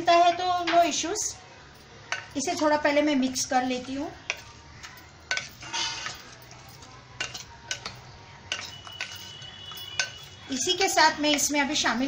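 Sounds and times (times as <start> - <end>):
spatula scraping glass bowl: 5.3 - 10.5.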